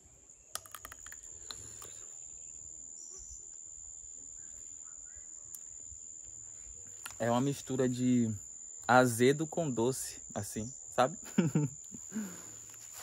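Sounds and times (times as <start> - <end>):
high-pitched insect trill: 0.0 - 13.0
clicks of biting into fruit: 0.6 - 2.0.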